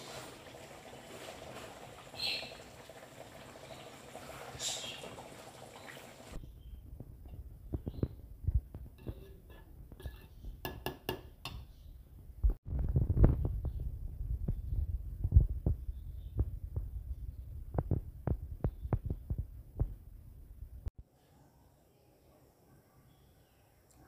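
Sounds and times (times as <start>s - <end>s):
spoon scraping in metal pot: 9.0s - 10.8s.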